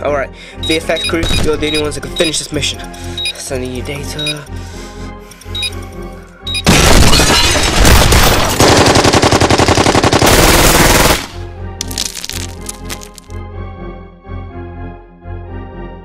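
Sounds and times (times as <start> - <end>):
background music: 0.0 - 16.0
machine-gun fire: 6.7 - 11.4.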